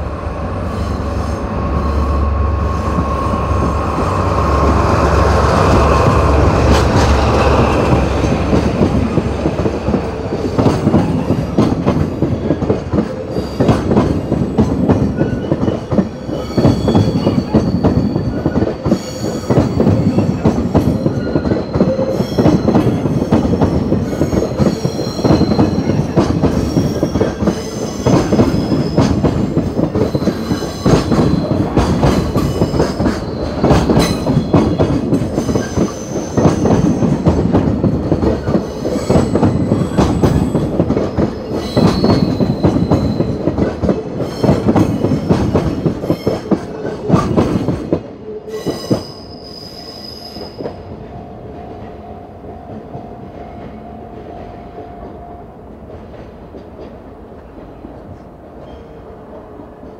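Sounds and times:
train rumble: 0.0 - 59.9
high wheel squeals: 30.0 - 34.8, 48.5 - 50.9.

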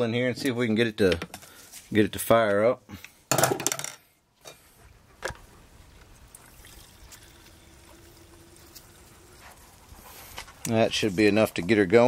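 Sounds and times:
fuel trickling into tank: 6.2 - 10.4.

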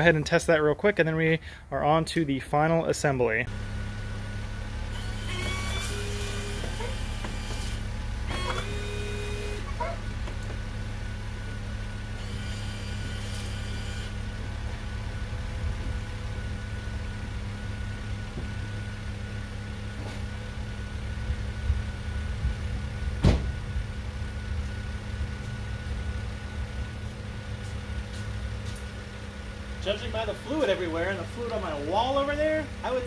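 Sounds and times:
car engine idling: 0.0 - 13.6, 14.2 - 33.0
thin high whine: 4.9 - 10.0
sharp thump: 23.2 - 23.6.

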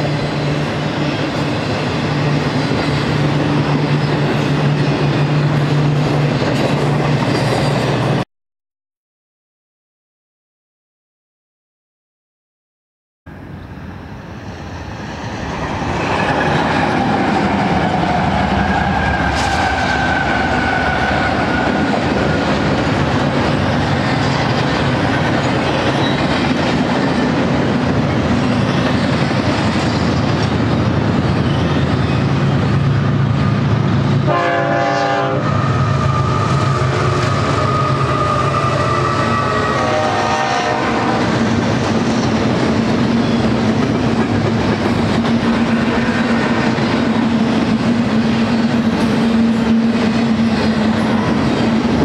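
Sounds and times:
freight train rumbling past: 0.0 - 8.2, 13.3 - 52.0
train horn: 17.7 - 22.3, 34.2 - 41.5.

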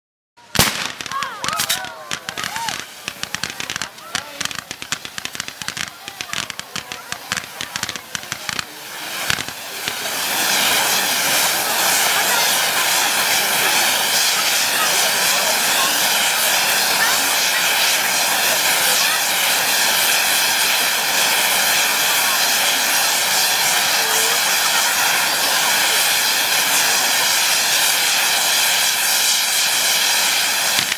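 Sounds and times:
firework fountain hissing: 0.4 - 30.9
sharp pops: 0.5 - 10.0.

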